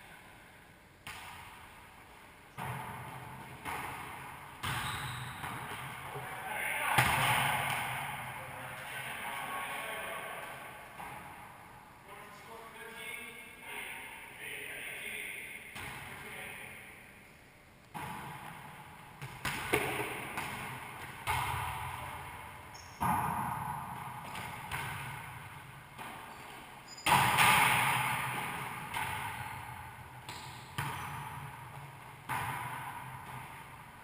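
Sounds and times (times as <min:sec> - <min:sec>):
ball smacks echoing in court: 0:01.0 - 0:01.8, 0:02.5 - 0:08.4, 0:10.5 - 0:11.5, 0:15.7 - 0:16.3, 0:17.8 - 0:33.9.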